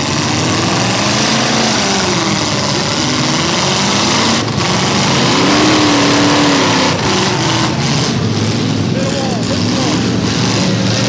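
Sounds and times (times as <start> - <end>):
car engines revving: 0.0 - 11.0.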